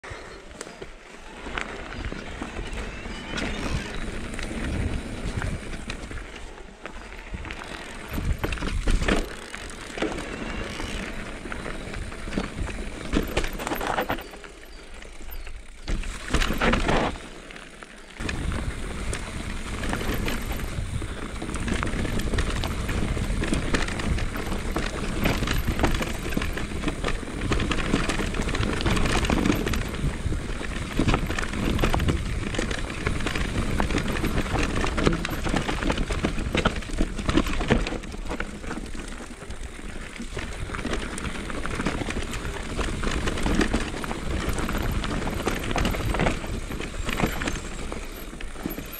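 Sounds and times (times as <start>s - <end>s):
bike tyres rolling over stones: 0.1s - 48.9s
bike knocking and rattling: 0.6s - 48.9s
wind rushing on microphone: 18.2s - 37.7s.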